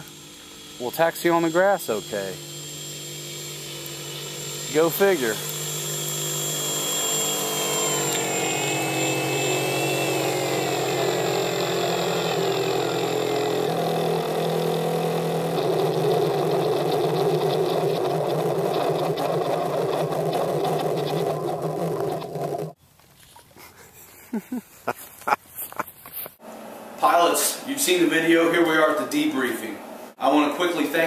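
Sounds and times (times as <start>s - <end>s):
electric motor whine: 0.0s - 22.8s
simulated radial engine idle: 8.0s - 22.8s.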